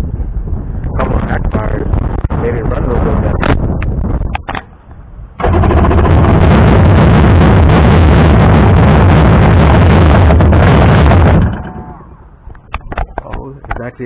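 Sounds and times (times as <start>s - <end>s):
jet ski engine running rough: 5.4s - 12.1s
engine popping: 5.4s - 13.0s.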